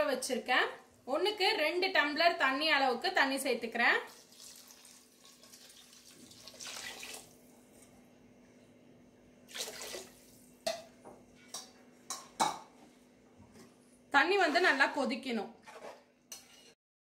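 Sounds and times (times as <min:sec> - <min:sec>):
water splashing into a pot: 0:04.1 - 0:07.4, 0:09.5 - 0:10.8.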